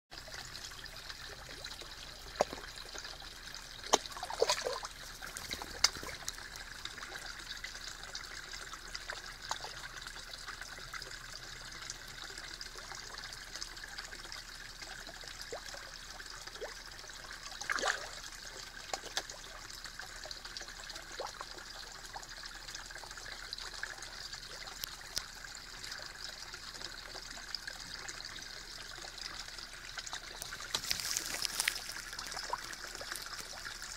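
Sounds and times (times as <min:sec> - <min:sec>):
water trickling: 0:00.1 - 0:33.9
fish splashing at surface: 0:03.8 - 0:06.4, 0:30.3 - 0:33.6.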